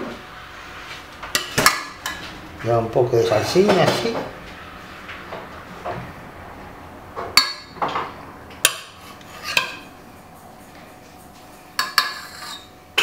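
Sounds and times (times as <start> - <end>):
spoon scraping: 8.7 - 9.9, 11.0 - 13.0.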